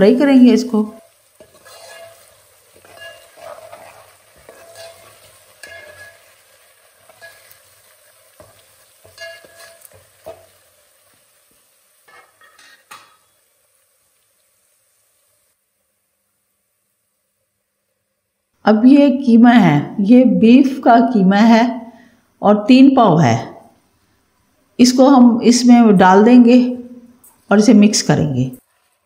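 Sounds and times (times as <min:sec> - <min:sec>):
spices frying in oil: 0:00.0 - 0:29.0
metal ladle scraping pot: 0:01.4 - 0:06.4, 0:07.0 - 0:07.6, 0:08.4 - 0:10.5.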